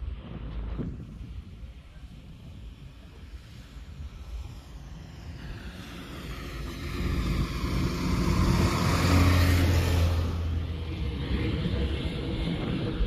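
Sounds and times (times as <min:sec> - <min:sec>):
vehicle passing by: 0:03.9 - 0:13.0.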